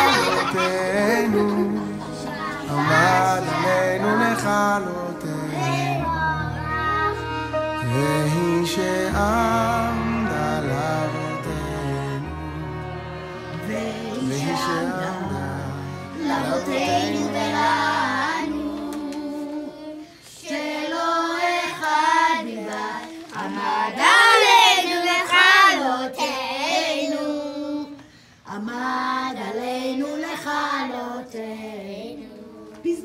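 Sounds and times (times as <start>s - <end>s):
low instrumental notes: 0.0s - 19.1s
children singing together: 0.0s - 32.8s.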